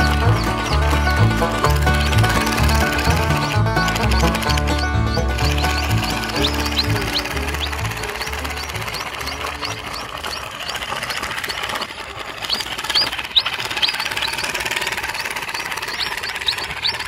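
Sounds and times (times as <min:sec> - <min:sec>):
toy truck rattling over dirt: 0:00.0 - 0:17.0
high bird chirps: 0:04.1 - 0:11.6, 0:12.4 - 0:17.0.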